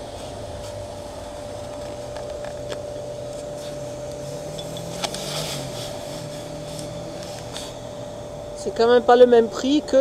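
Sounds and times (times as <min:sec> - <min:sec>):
gas dispenser whine: 0:00.0 - 0:10.0
low hum: 0:00.0 - 0:10.0.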